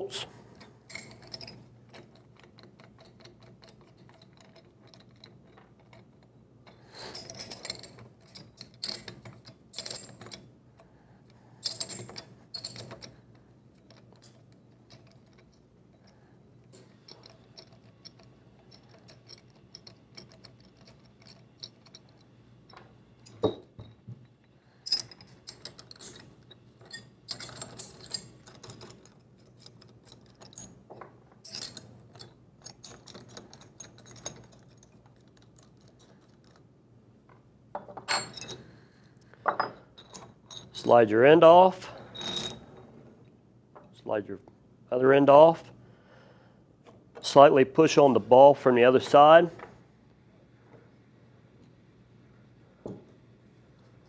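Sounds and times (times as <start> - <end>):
wrenches clinking on metal bolts: 0.6 - 10.5, 11.6 - 36.6, 37.8 - 38.7, 39.5 - 42.8.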